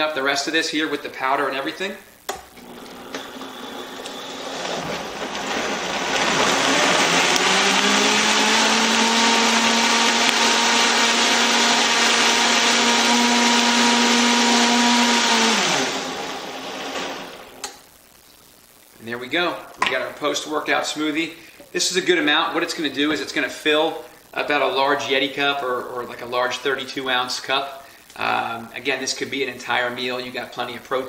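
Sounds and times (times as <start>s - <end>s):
blender running: 2.6s - 17.7s.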